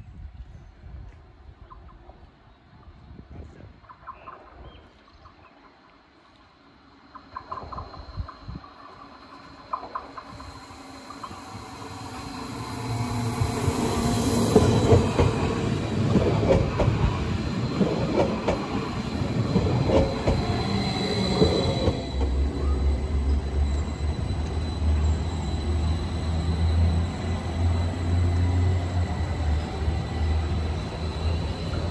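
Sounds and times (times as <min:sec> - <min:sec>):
low steady train hum: 0:00.0 - 0:31.9
train approaching: 0:05.7 - 0:31.9
train wheels clattering and squealing: 0:07.1 - 0:31.9.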